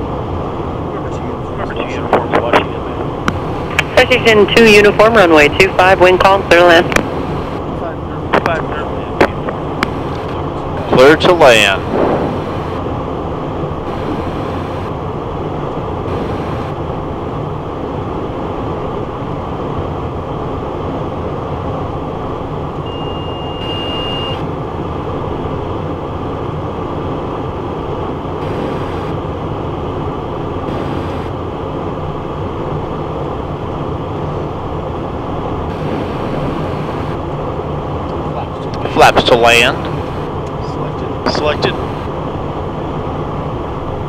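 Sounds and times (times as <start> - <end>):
airflow in cockpit: 0.0 - 44.0
jet engines humming: 0.0 - 44.0
high beep: 22.9 - 24.4.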